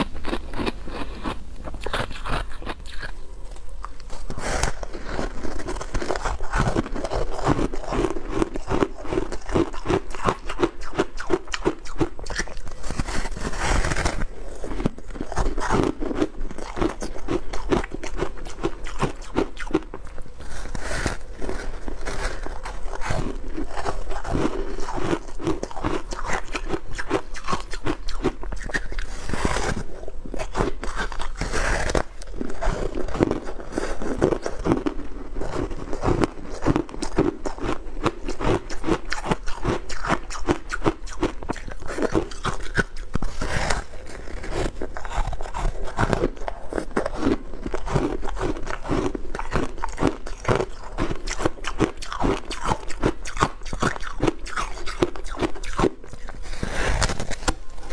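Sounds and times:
ice being chewed: 0.0s - 57.9s.

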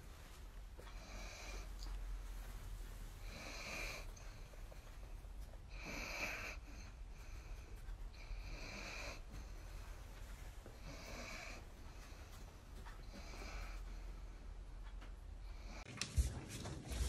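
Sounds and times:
dog snoring: 3.2s - 4.5s, 5.7s - 9.8s, 10.7s - 12.2s.

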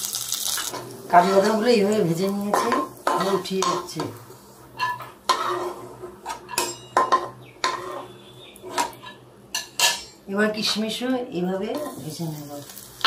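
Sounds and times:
spatula scraping and clinking pan: 2.5s - 4.0s, 4.8s - 10.8s.

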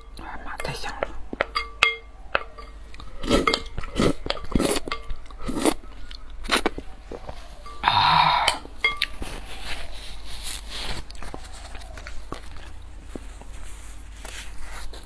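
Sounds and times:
chewing: 2.3s - 7.8s, 8.4s - 14.3s.

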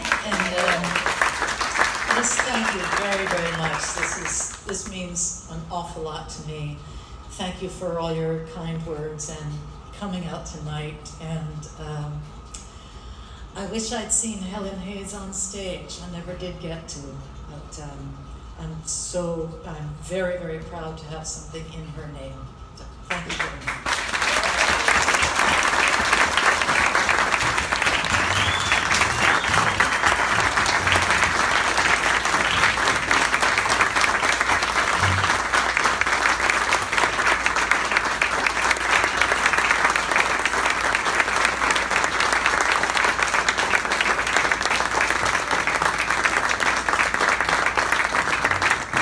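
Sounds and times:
crowd applause: 0.0s - 4.6s, 23.7s - 49.0s.

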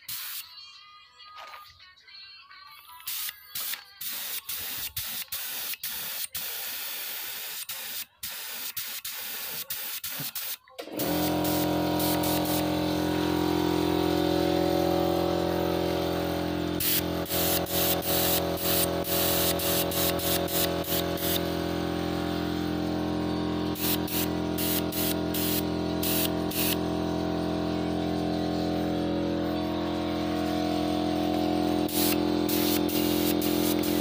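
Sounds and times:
spray gun hissing bursts: 0.0s - 0.4s, 3.1s - 34.0s
air compressor motor humming: 10.2s - 34.0s.

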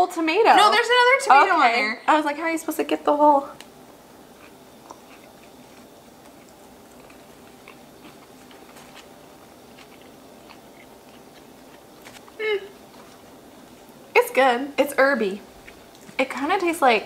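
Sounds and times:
soft mouth clicks chewing: 4.4s - 9.1s.

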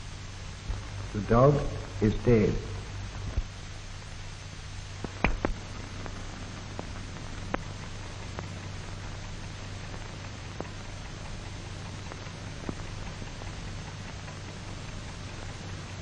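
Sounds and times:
film soundtrack hiss and hum: 0.0s - 16.0s
clicks and pops: 5.0s - 15.7s.

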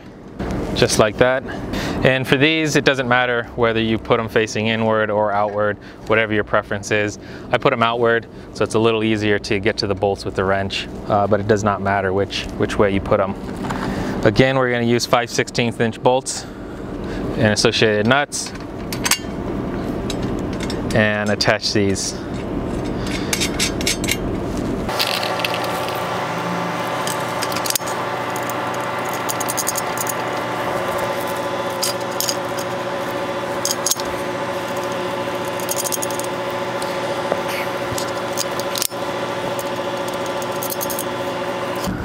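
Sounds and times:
steady background hum: 0.0s - 42.0s
metal bolts and nuts clinking: 18.4s - 19.3s, 27.0s - 30.3s, 30.9s - 36.4s, 38.0s - 41.1s.

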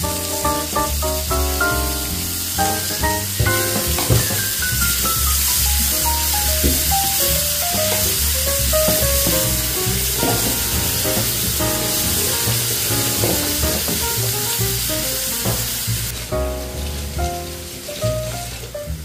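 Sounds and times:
sausage and onion sizzling in pan: 0.0s - 19.0s
background music: 8.8s - 19.0s.

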